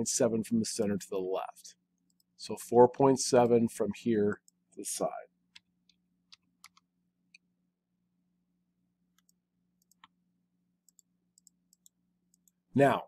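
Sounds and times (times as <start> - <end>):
computer mouse clicks: 5.5 - 7.5, 9.1 - 10.2, 10.8 - 12.6.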